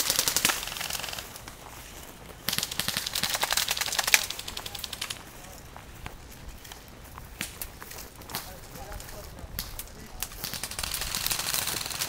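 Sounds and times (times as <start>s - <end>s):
airsoft gun full-auto burst: 0.0s - 1.4s, 2.5s - 5.2s, 10.2s - 12.0s.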